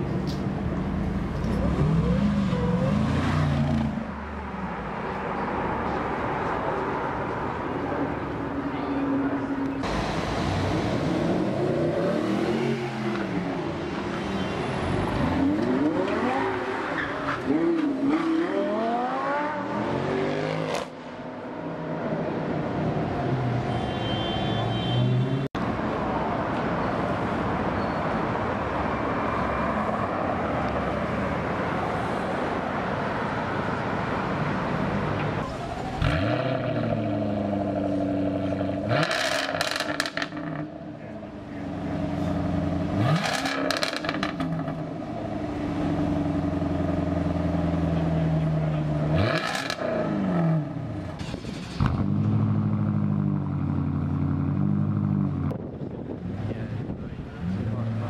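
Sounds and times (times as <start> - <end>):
car engine revving: 41.5 - 55.6.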